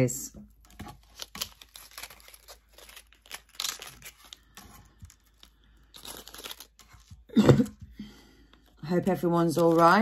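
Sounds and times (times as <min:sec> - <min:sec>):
plastic bag crinkling: 0:00.9 - 0:07.3.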